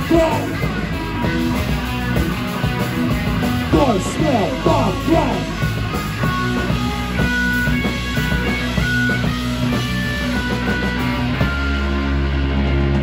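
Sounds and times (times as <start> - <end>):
rock band playing: 0.0 - 13.0.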